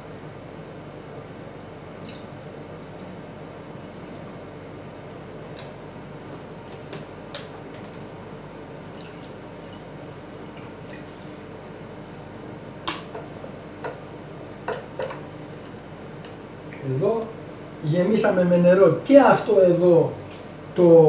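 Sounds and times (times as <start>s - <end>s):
steady low hum: 0.0s - 21.0s
water trickling and dripping: 8.9s - 11.6s.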